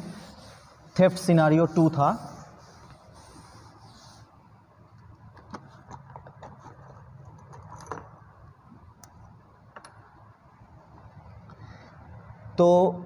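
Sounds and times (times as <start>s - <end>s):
cloth rubbing a chalkboard: 0.0s - 4.7s.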